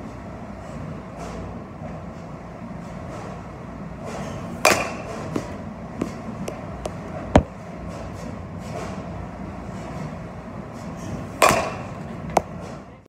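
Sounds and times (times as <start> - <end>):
machinery hum: 0.0 - 13.0
bat hitting ball crack: 4.6 - 5.5, 11.4 - 11.9.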